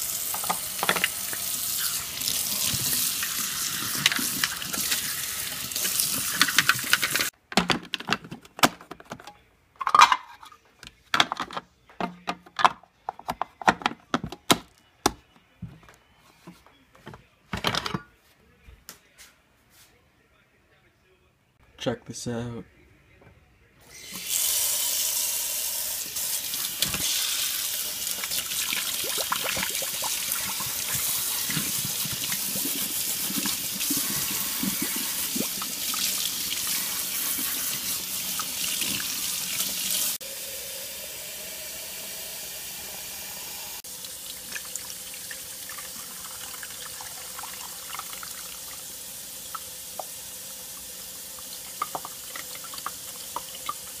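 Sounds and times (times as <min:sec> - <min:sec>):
faucet running into sink: 0:00.0 - 0:07.3, 0:24.0 - 0:54.0
water pouring into reservoir: 0:28.1 - 0:43.1, 0:43.8 - 0:48.8, 0:51.5 - 0:54.0.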